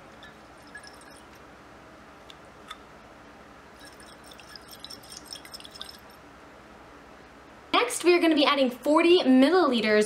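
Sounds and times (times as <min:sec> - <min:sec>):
liquid sloshing in glass jar: 0:00.2 - 0:01.4, 0:03.8 - 0:06.2
small drips and ticks: 0:03.8 - 0:06.2.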